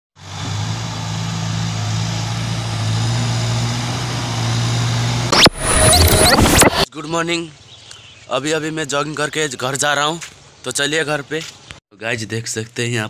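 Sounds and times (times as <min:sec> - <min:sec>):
engine humming: 0:00.2 - 0:06.9
loud harsh burst: 0:02.7 - 0:06.9.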